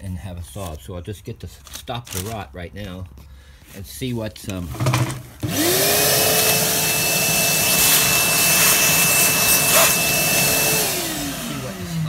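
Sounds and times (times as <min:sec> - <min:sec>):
shop vacuum motor whine: 0:05.4 - 0:12.0
air rushing through hose: 0:05.8 - 0:11.0.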